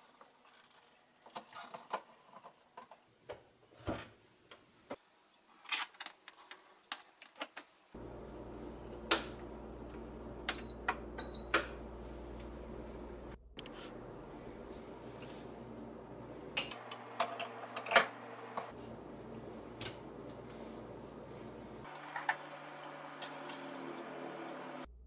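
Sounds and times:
machine low hum: 8.0 - 25.0.

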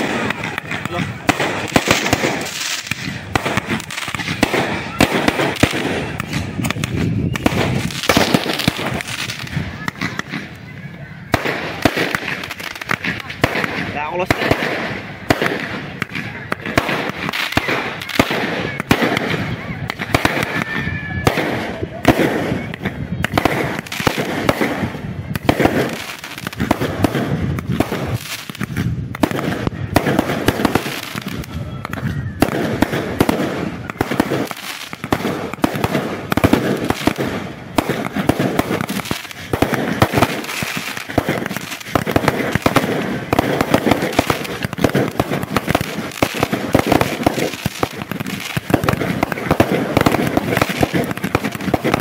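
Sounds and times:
fireworks and firecrackers banging: 0.0 - 52.0.

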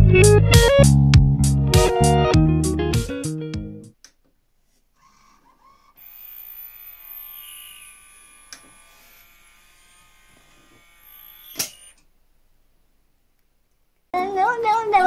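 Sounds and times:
disc player high-pitched whine: 5.1 - 12.0.

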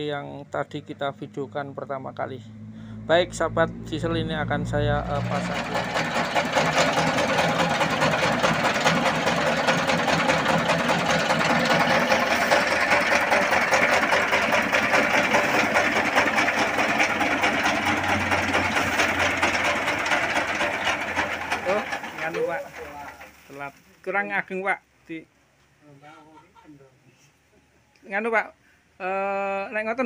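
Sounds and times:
diesel engine running: 0.8 - 23.7
grain mill clattering: 5.0 - 24.2.

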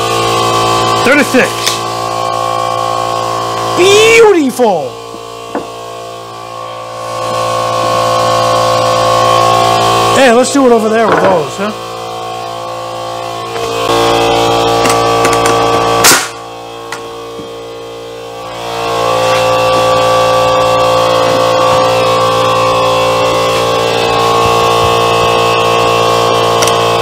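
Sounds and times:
nail gun firing: 14.8 - 16.4.

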